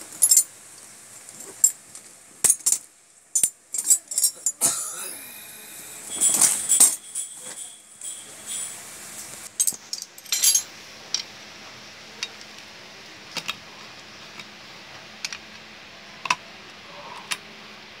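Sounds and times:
metal parts clinking: 0:00.1 - 0:00.5, 0:02.4 - 0:04.6, 0:06.0 - 0:11.2.

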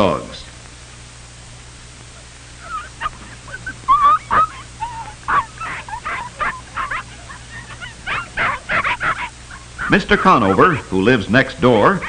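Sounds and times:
puppies yelping and whining: 0:02.2 - 0:11.0.

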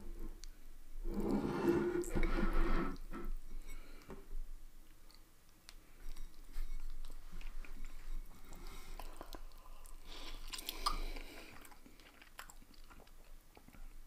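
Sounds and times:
person chewing noodles: 0:05.0 - 0:14.0.

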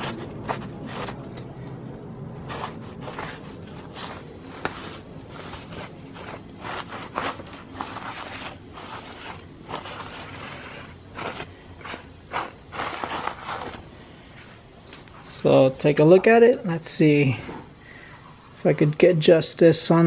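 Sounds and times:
cloth rag wiping metal: 0:00.0 - 0:01.4, 0:02.4 - 0:14.6.

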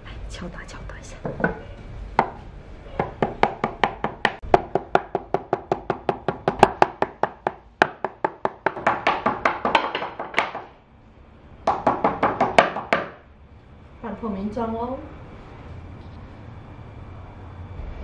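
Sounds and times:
rolling pin pounding meat on board: 0:03.0 - 0:10.8, 0:11.7 - 0:13.2.

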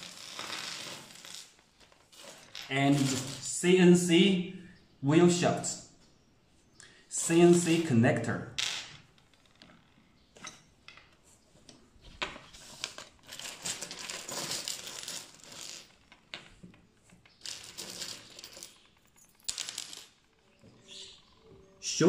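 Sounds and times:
metal fittings clinking on wood: 0:12.8 - 0:20.3.

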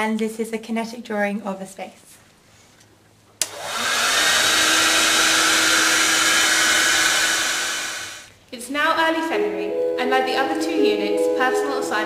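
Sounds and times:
hair dryer switch click: 0:03.4 - 0:03.8
hair dryer blowing: 0:03.4 - 0:08.3.

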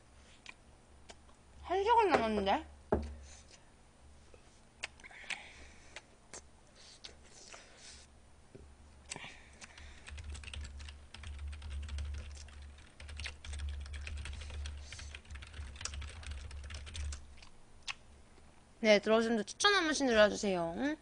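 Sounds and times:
keyboard typing: 0:09.8 - 0:17.2.

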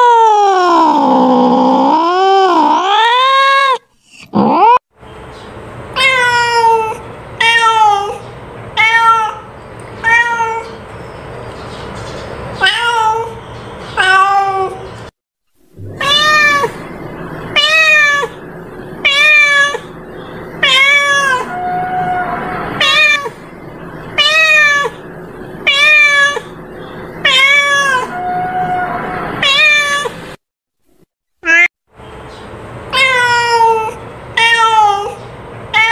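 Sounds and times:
cat meowing: 0:06.0 - 0:08.2, 0:08.8 - 0:10.8, 0:12.6 - 0:13.4, 0:14.0 - 0:14.9, 0:15.8 - 0:16.9, 0:17.5 - 0:18.4, 0:19.0 - 0:19.9, 0:20.6 - 0:23.4, 0:24.2 - 0:25.0, 0:25.6 - 0:26.6, 0:27.2 - 0:30.2, 0:31.4 - 0:31.7, 0:32.9 - 0:35.9.

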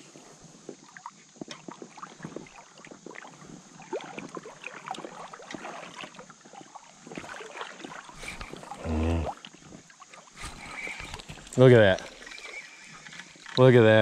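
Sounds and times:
creek water splashing and trickling: 0:00.0 - 0:14.0.

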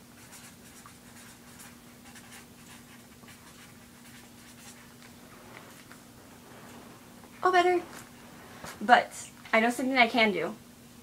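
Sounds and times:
low steady hum: 0:00.0 - 0:11.0
marker scratching on paper: 0:00.2 - 0:06.8.

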